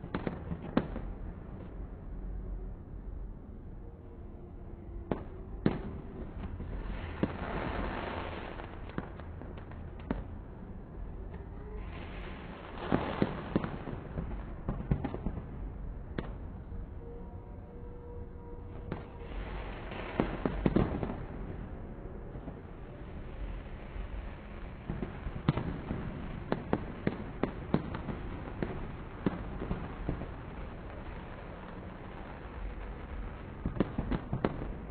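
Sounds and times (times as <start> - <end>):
crackling hiss of bursting stars: 0.0 - 17.0, 18.3 - 34.9
low background noise: 0.0 - 34.9
firework bangs: 11.8 - 16.6, 18.8 - 34.9.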